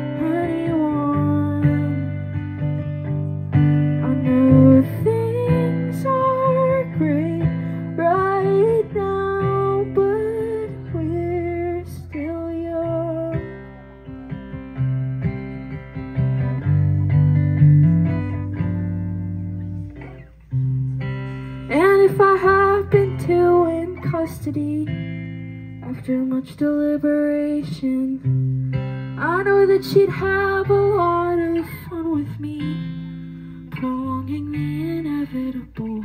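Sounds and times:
person singing: 0:00.0 - 0:03.3, 0:03.9 - 0:15.0, 0:21.7 - 0:25.0
electric guitar song: 0:00.0 - 0:36.0.

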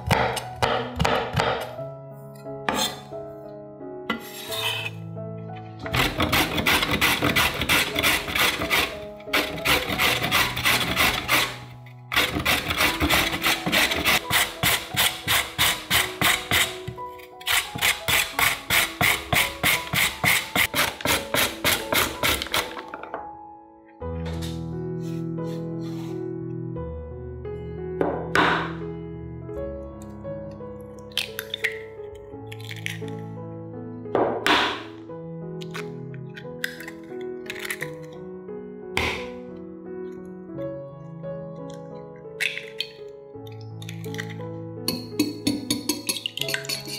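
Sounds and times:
soft background music: 0:00.0 - 0:46.9
carrot rasping on grater: 0:06.0 - 0:11.6, 0:12.2 - 0:16.8, 0:17.4 - 0:22.5.

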